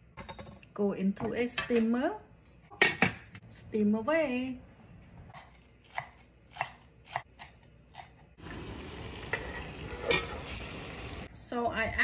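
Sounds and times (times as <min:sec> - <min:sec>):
metal lid clink: 0:09.9 - 0:10.5.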